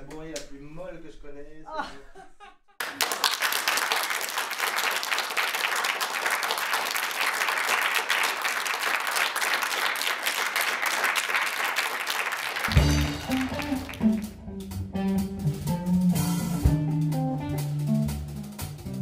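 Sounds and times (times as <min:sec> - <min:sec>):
audience applauding: 0:02.8 - 0:14.3.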